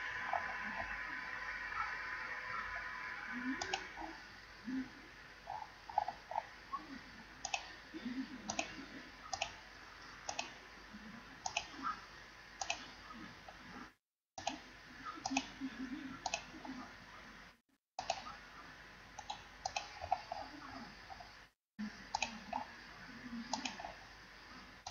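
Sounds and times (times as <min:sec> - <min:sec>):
computer mouse clicking: 0:03.4 - 0:04.2, 0:05.5 - 0:06.5, 0:07.4 - 0:12.0, 0:12.6 - 0:13.8, 0:14.4 - 0:16.9, 0:18.0 - 0:18.4, 0:19.2 - 0:21.3, 0:22.0 - 0:22.7, 0:23.3 - 0:24.0.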